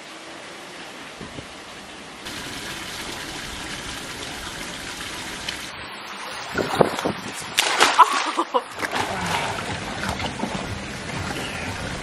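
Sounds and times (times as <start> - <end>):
running water hiss: 0.0 - 7.6
sudden splashes: 6.4 - 10.4.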